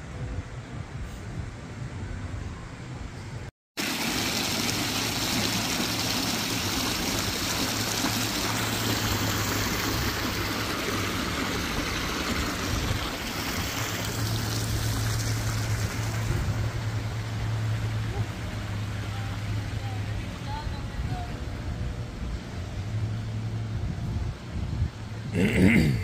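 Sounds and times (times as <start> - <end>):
fountain jets splashing: 3.8 - 23.8.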